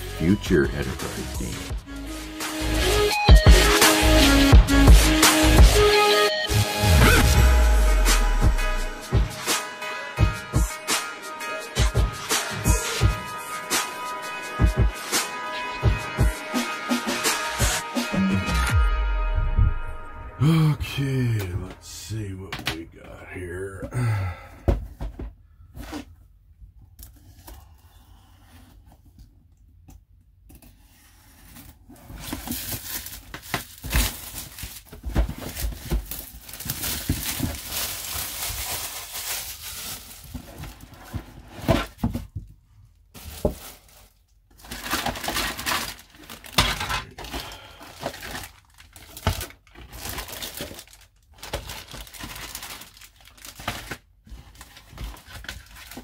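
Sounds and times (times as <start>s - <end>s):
plastic bags crinkling: 32.2s - 41.5s, 43.0s - 56.0s
plastic shrink wrap tearing: 32.5s - 40.8s, 43.2s - 56.0s.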